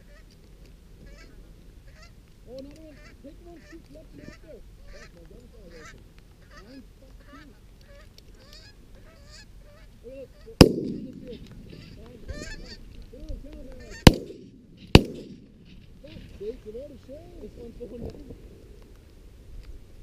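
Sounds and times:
geese honking: 1.0s - 14.3s
shotgun shots with echo: 10.6s - 11.5s, 14.0s - 15.5s.

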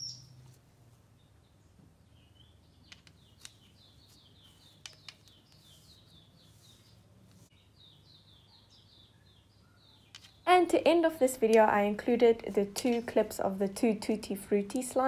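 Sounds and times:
small bird chirping faintly: 0.0s - 10.5s.

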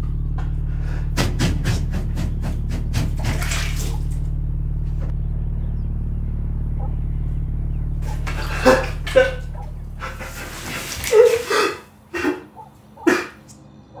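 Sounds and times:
low steady drone: 0.0s - 14.0s
short ragged breaths: 0.6s - 2.2s, 8.0s - 13.5s.

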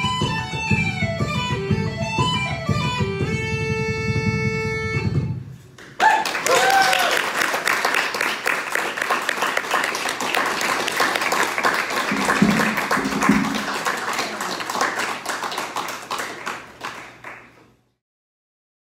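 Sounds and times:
audience applauding: 5.8s - 17.6s.

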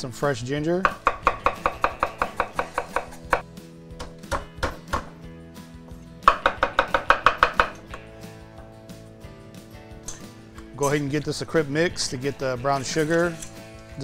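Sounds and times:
background music: 0.0s - 14.0s
knife chopping on wooden board: 0.8s - 3.4s, 4.0s - 5.2s, 6.2s - 8.1s.

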